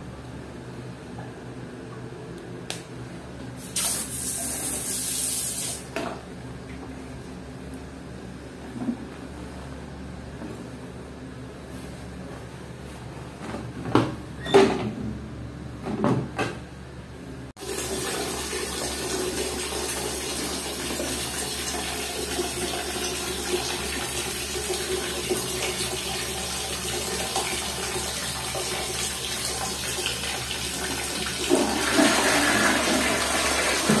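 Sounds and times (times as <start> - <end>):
toilet flushing: 17.6 - 34.0.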